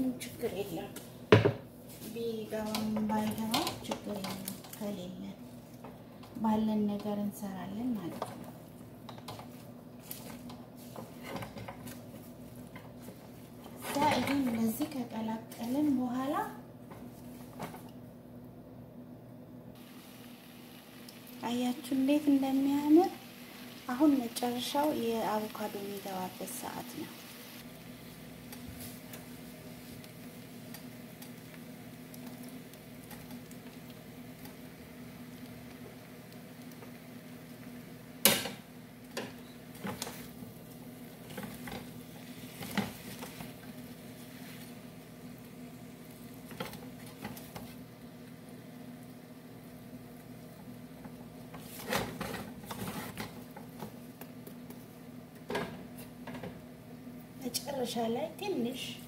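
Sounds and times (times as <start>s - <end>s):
food frying faintly in pan: 0.0s - 18.2s, 19.7s - 59.0s
steady low hum: 0.0s - 59.0s
wooden spatula scraping frying pan: 9.2s - 14.9s, 41.2s - 44.8s, 51.5s - 53.9s.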